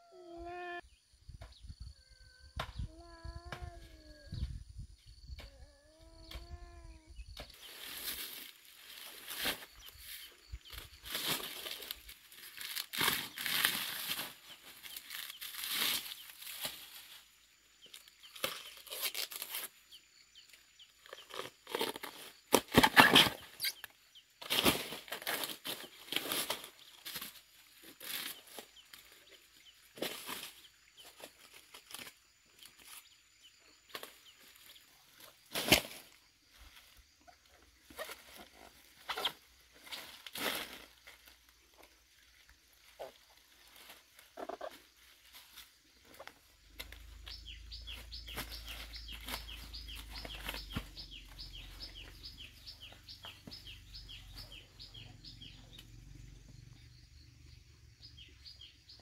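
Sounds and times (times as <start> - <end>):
dry leaves crackling: 7.6 - 17.3, 44.8 - 55.0
sheaths tearing off banana trunk: 11.2 - 16.8, 18.3 - 19.7, 21.2 - 23.8.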